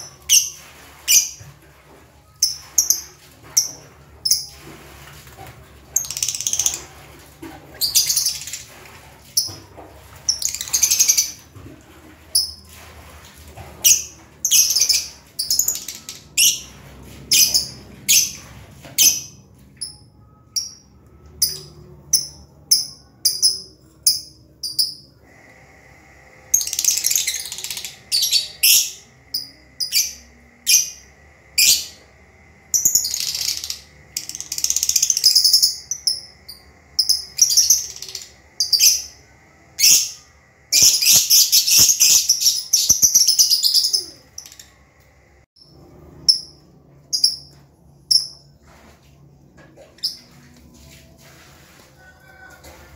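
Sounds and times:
birds chirping and chattering: 26.6s - 44.8s.

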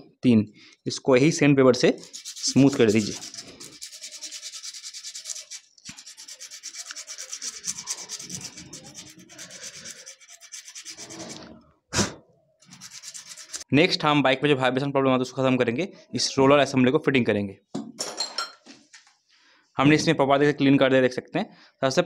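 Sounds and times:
sandpaper rubbing: 2.0s - 11.5s, 12.6s - 13.7s.

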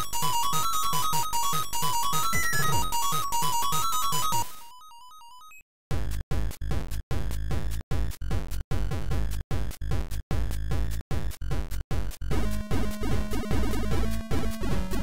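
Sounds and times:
chiptune synthetic drum beat: 0.0s - 3.8s, 5.9s - 15.0s.

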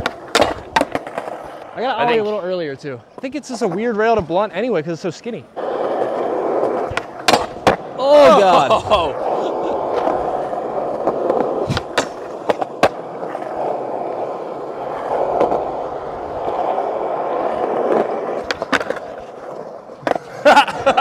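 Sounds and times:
skateboard knocking onto ledge: 0.0s - 1.4s, 6.7s - 7.9s, 11.0s - 13.4s
skateboard clacks: 0.0s - 1.8s, 5.6s - 8.0s, 9.0s - 21.0s
skateboard wheels rolling on asphalt: 0.0s - 21.0s.

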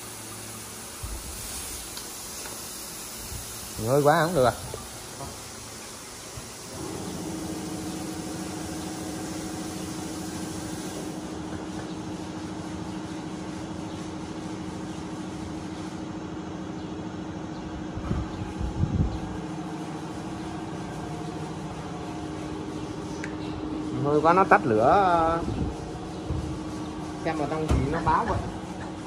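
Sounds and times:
plasma cutter buzzing with air hiss: 0.0s - 13.5s.

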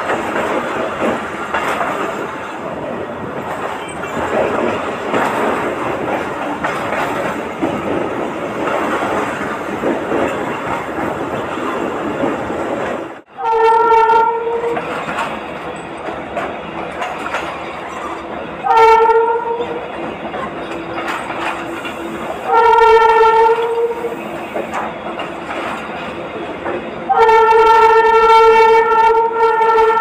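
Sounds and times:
train rumbling on rails: 0.0s - 30.0s
train horn blasts: 13.3s - 14.8s, 18.6s - 19.8s, 22.0s - 24.2s, 27.1s - 30.0s.

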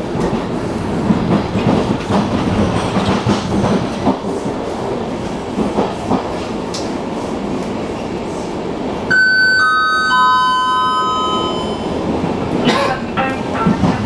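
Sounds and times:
train rumbling: 0.0s - 14.0s
descending public-address chime: 9.1s - 12.1s.

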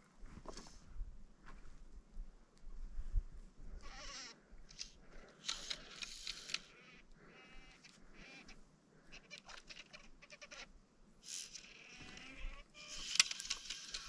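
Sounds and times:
fly reel clicking: 5.4s - 6.8s, 11.2s - 14.0s.

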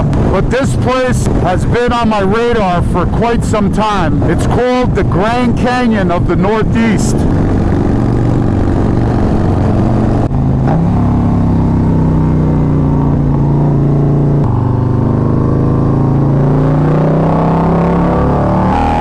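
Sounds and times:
motorcycle engine cruising: 4.2s - 19.0s.

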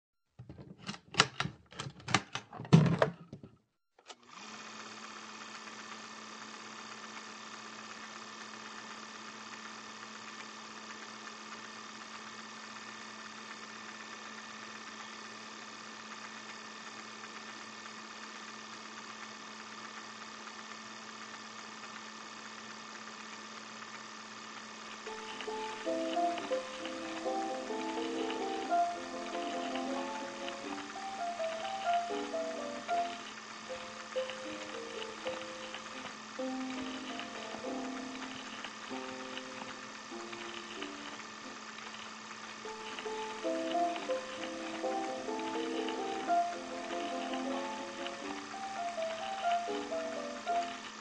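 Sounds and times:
steady multi-tone hum: 12.8s - 51.0s.

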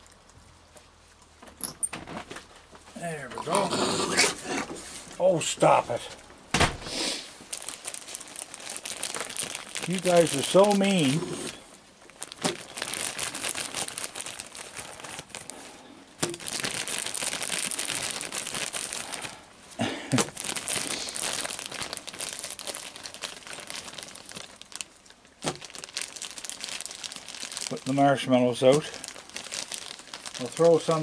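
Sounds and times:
plastic bag crinkling: 6.9s - 31.0s.

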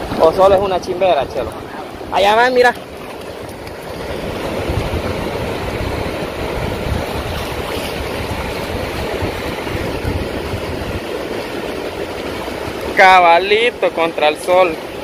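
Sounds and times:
wind buffeting microphone: 0.0s - 13.7s
ocean surf washing ashore: 0.0s - 15.0s.

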